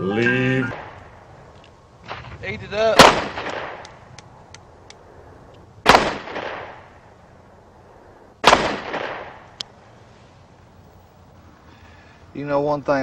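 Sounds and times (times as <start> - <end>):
gunshot echo: 2.1 - 4.0, 5.8 - 6.9, 8.4 - 9.5
pistol shots: 2.9 - 4.0, 5.8 - 6.9, 8.4 - 9.5.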